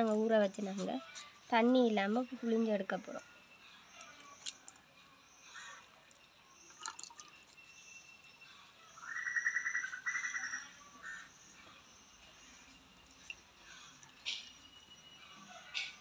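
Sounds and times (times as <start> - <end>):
wet squelching and dripping: 4.0 - 4.8, 5.5 - 7.8.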